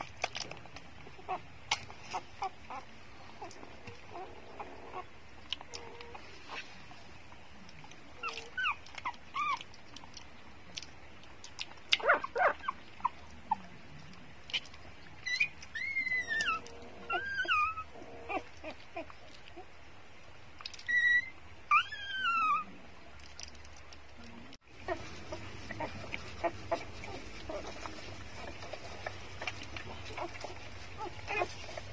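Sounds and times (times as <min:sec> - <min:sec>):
puppies whimpering and squealing: 0:01.0 - 0:06.8, 0:08.1 - 0:09.8, 0:12.0 - 0:13.7, 0:14.6 - 0:19.8, 0:20.7 - 0:22.8, 0:24.8 - 0:31.9.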